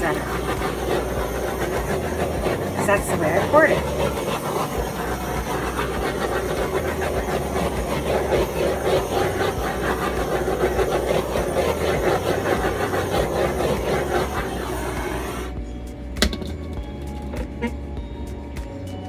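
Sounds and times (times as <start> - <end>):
mechanical running noise: 0.0 - 17.9.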